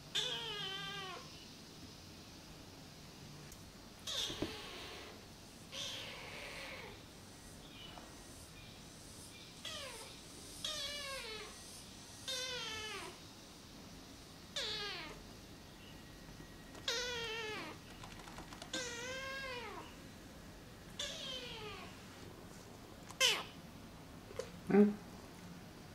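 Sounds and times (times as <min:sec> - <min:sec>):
kitten meowing: 0:16.8 - 0:17.8, 0:18.7 - 0:19.8, 0:21.0 - 0:21.9, 0:23.2 - 0:23.5.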